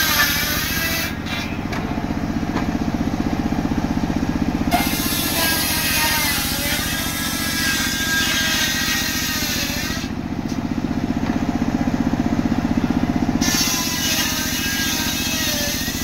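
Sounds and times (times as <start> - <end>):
sawmill engine running: 0.0 - 16.0.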